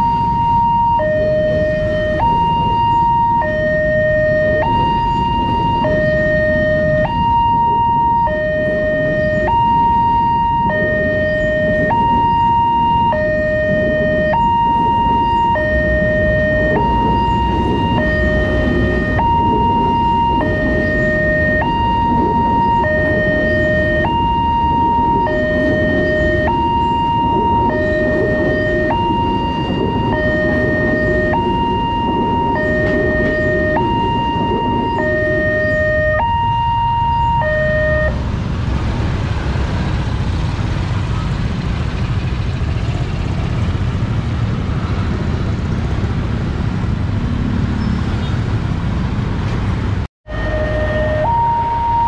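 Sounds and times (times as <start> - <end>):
level crossing two-tone alarm: 0.0 - 38.2, 50.3 - 52.0
road traffic noise: 0.0 - 52.0.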